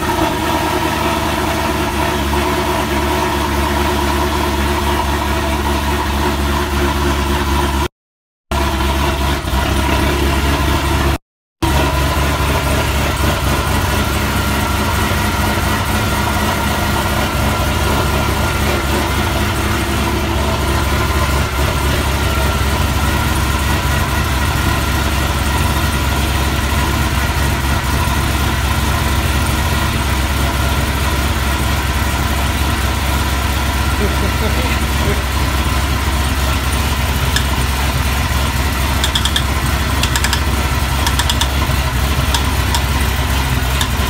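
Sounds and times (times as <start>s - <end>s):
car engine idling: 19.3s - 44.0s.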